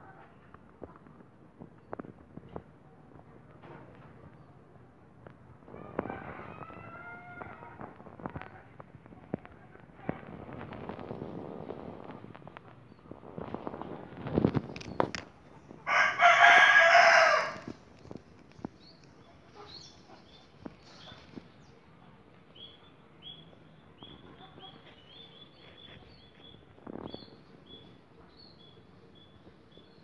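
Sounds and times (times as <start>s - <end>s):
rooster crowing: 15.9s - 17.7s
small bird chirping: 22.5s - 30.0s.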